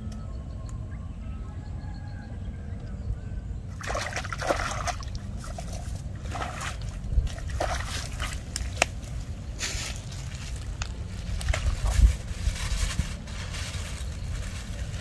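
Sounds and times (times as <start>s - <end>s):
mud and water sloshing: 3.7s - 15.0s.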